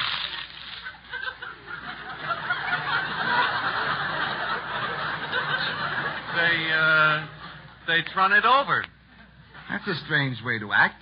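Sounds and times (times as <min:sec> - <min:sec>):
audience laughing: 0:00.7 - 0:07.8.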